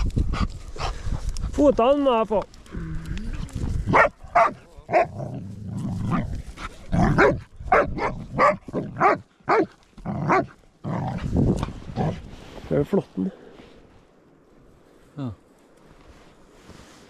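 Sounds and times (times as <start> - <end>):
dog barking sharply: 3.9 - 5.1, 7.2 - 9.7.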